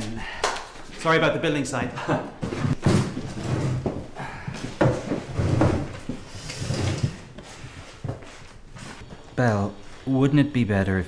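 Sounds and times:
chairs knocking and scraping: 2.1s - 9.3s.

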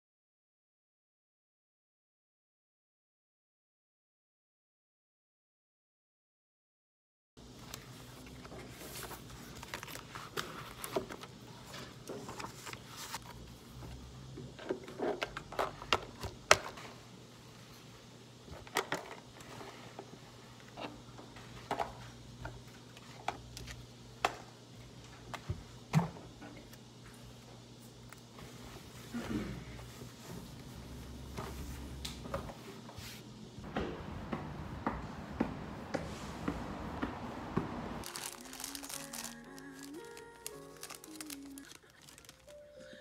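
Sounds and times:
paper rustling: 7.7s - 13.5s, 38.0s - 42.6s.

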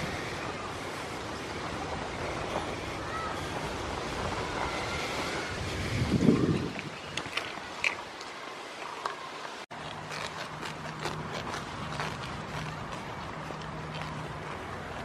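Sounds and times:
wind buffeting microphone: 0.0s - 7.9s.

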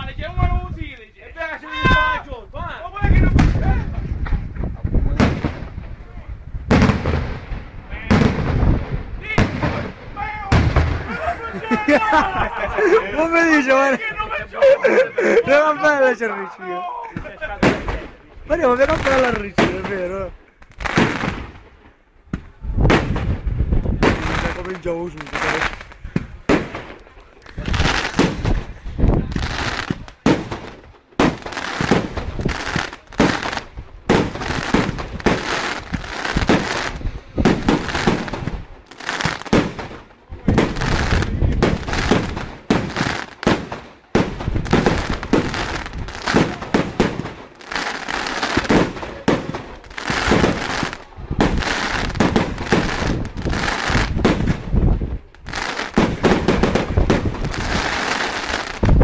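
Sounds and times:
fireworks bursting and crackling: 3.0s - 14.4s, 15.3s - 59.0s.

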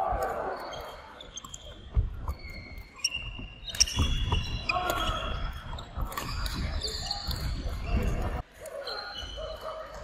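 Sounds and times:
shoes squeaking on wooden court: 0.4s - 10.0s.

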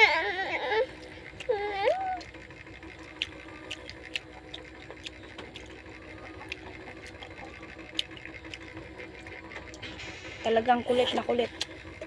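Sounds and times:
low mechanical hum: 0.0s - 12.0s
chewing: 0.9s - 9.8s.

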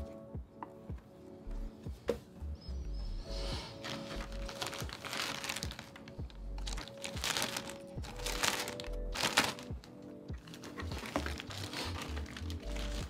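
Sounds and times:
chill background music: 0.0s - 13.0s
plastic wrapping crinkling: 3.7s - 13.0s.

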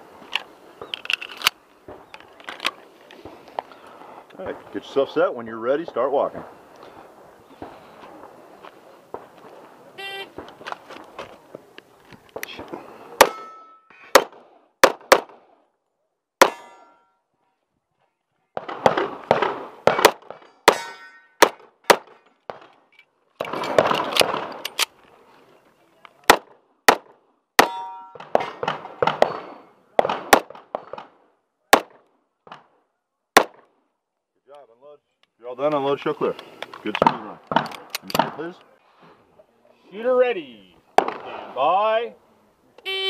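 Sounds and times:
pistol shots: 12.6s - 15.4s, 18.6s - 22.7s, 26.3s - 32.7s, 33.4s - 33.7s
metallic ring: 13.3s - 13.9s, 16.5s - 17.2s, 20.6s - 21.4s, 27.7s - 28.2s.

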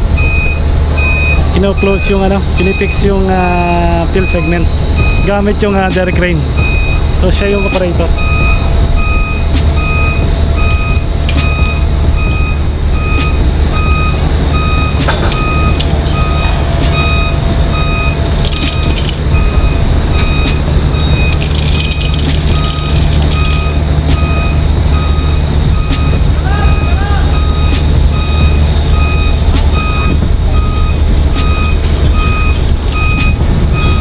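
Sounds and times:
low drone of machinery: 0.0s - 34.0s
machinery warning alarm beeping: 0.0s - 34.0s.

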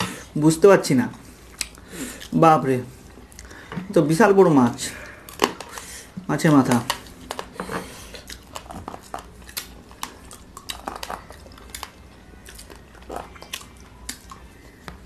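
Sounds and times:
people chewing: 1.1s - 3.8s, 4.9s - 15.0s
lip smacks and clicks: 1.5s - 2.4s.

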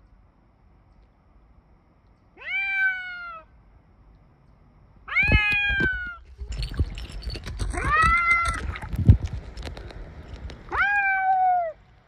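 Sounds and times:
cat meowing: 2.4s - 3.5s, 5.1s - 6.2s, 10.7s - 11.8s.

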